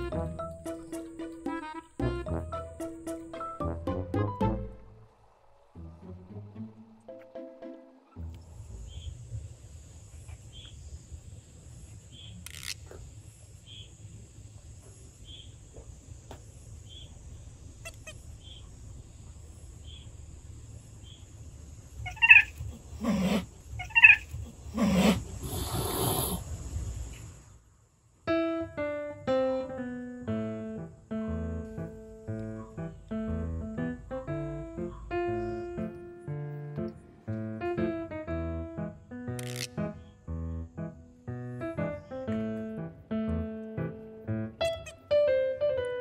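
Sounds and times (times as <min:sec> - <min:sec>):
light piano music: 0:00.0 - 0:05.0, 0:06.6 - 0:08.3, 0:28.3 - 0:46.0
cats crying: 0:17.8 - 0:18.3, 0:22.0 - 0:26.1, 0:44.6 - 0:45.2
cat hissing: 0:22.0 - 0:26.6.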